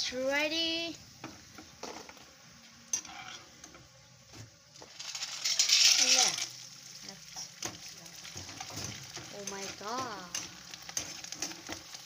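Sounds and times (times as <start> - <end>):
frying hiss: 0.0 - 12.0
loud sizzling in hot oil: 0.0 - 12.0
chips clicking and rattling: 5.0 - 6.6.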